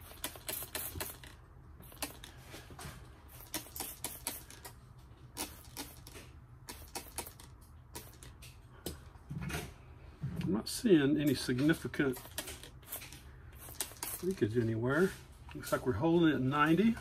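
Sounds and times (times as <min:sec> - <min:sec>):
spray bottle spritzing: 0:00.0 - 0:02.3, 0:03.3 - 0:08.4, 0:12.1 - 0:14.4.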